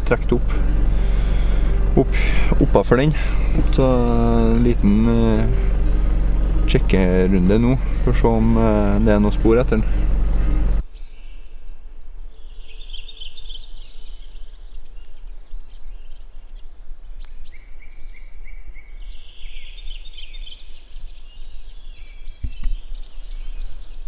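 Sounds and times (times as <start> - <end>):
steady low rumble: 0.0 - 10.9
songbirds chirping and trilling: 0.0 - 24.0.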